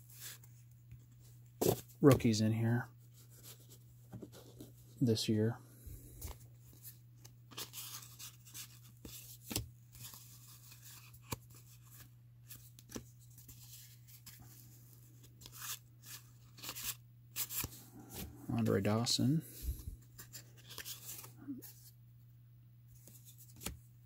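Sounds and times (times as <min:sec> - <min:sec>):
cards flipping and tapping: 0:01.6 - 0:02.3, 0:23.0 - 0:23.8.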